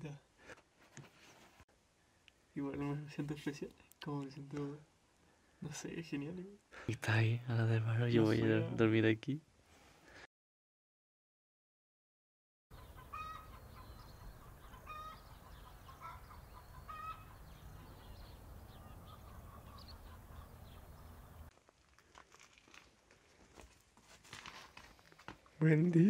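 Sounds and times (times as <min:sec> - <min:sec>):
birds calling: 0:12.7 - 0:21.5.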